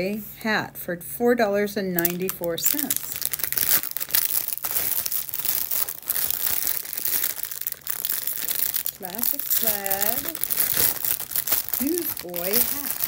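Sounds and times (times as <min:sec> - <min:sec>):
plastic bag crinkling: 0:02.0 - 0:13.0.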